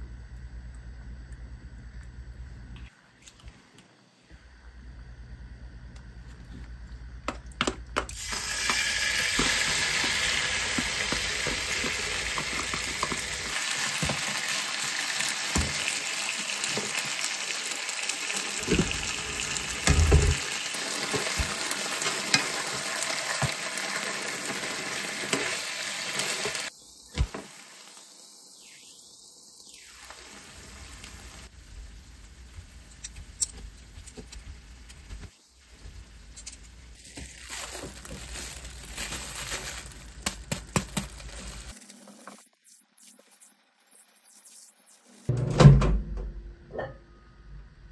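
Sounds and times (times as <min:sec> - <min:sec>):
seafood sizzling in a frying pan: 0:08.1 - 0:28.4, 0:30.0 - 0:41.8.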